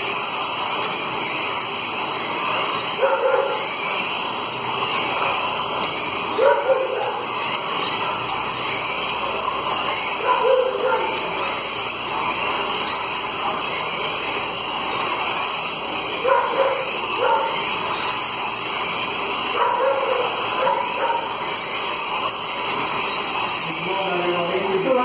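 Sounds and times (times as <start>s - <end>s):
slot cars whirring on track: 0.0s - 25.0s.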